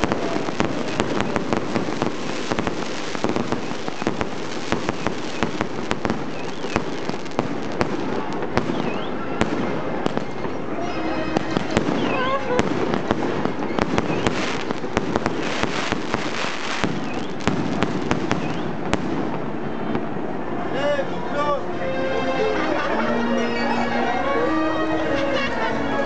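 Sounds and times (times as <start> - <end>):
burning sparks crackling: 0.0 - 19.4.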